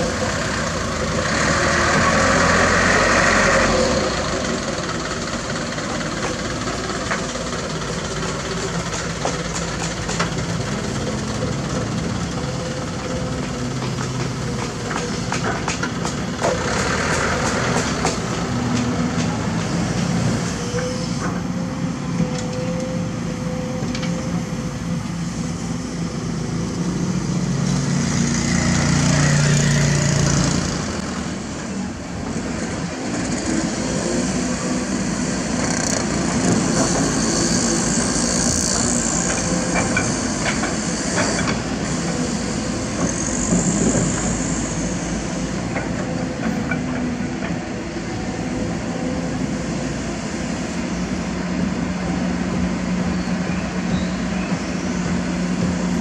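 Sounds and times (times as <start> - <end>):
heavy diesel engines running: 0.0 - 56.0.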